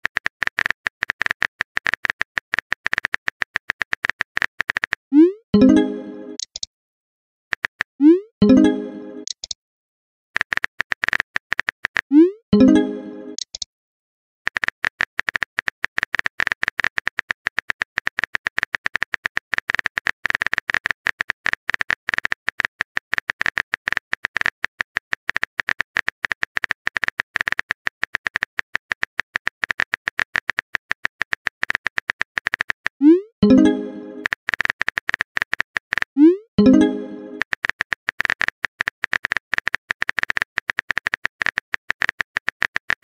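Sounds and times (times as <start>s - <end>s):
phone keyboard typing clicks: 0.0s - 5.0s, 5.6s - 6.7s, 7.5s - 9.6s, 10.4s - 13.7s, 14.5s - 43.0s.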